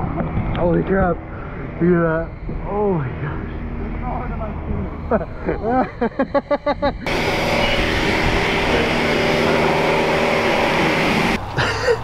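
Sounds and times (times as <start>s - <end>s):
high-pressure water spraying: 7.1s - 11.4s.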